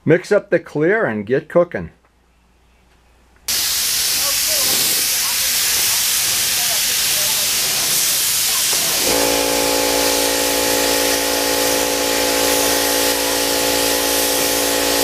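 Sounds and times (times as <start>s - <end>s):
spray gun hissing: 3.5s - 15.0s.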